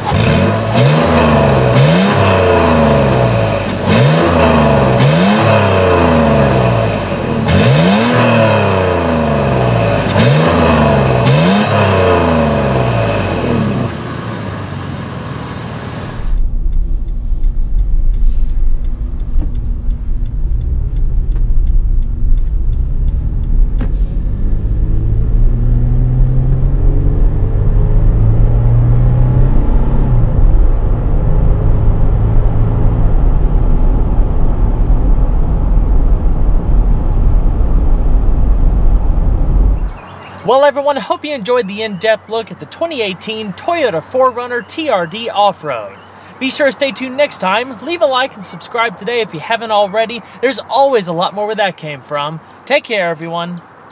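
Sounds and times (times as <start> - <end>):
car engine idling: 0.0 - 25.6, 30.3 - 53.0
road rumble inside car: 0.0 - 40.5
engine accelerating: 0.0 - 50.9
car engine revving: 0.0 - 51.4.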